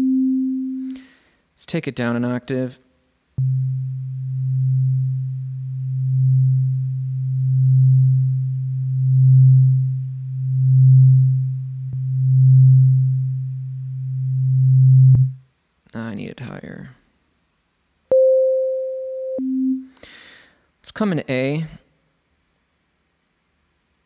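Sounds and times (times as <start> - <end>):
low pulsing synth sine tone: 0.0 - 0.9, 3.4 - 15.4, 18.1 - 19.9.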